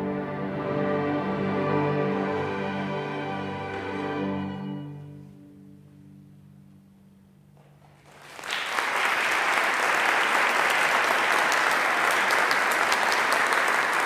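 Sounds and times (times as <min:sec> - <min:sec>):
audience applauding: 0:08.0 - 0:14.0.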